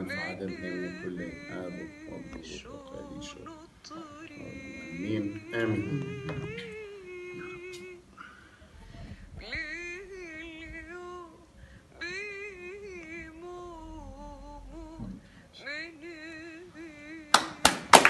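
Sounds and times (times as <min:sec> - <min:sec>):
person chanting: 0:00.0 - 0:08.0.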